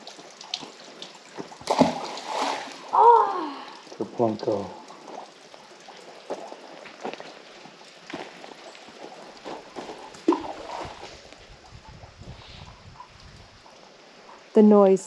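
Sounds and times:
footsteps on dirt trail: 0:06.2 - 0:11.6.

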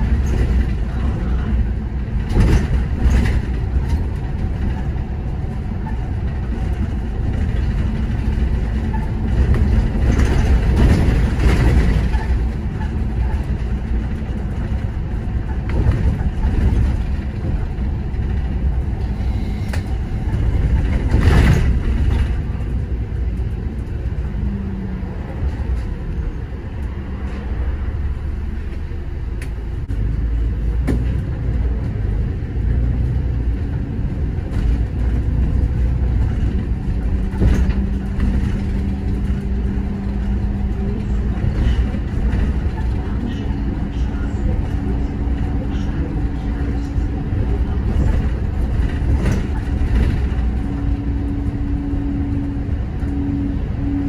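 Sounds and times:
bus engine and road rumble: 0:00.0 - 0:54.0.

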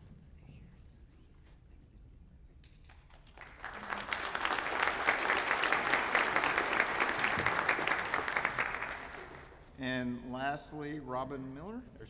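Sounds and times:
audience applauding: 0:03.1 - 0:09.6.

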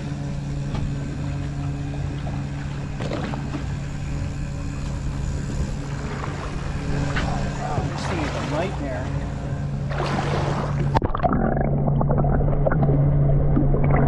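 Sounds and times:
outboard motors idling: 0:00.0 - 0:11.0.

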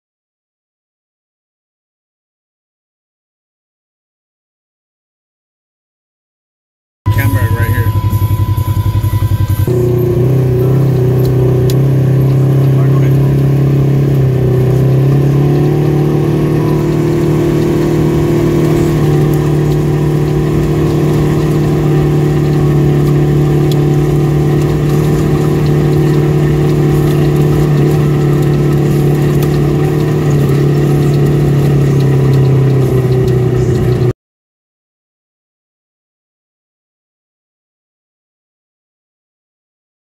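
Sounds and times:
vehicle engine running: 0:07.1 - 0:34.2.

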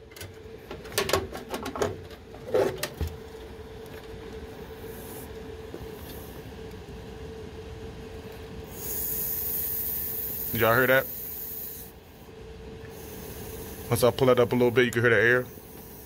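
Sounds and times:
fan unit humming: 0:00.0 - 0:16.0
compressed air hisses: 0:08.7 - 0:12.2, 0:12.9 - 0:13.9.

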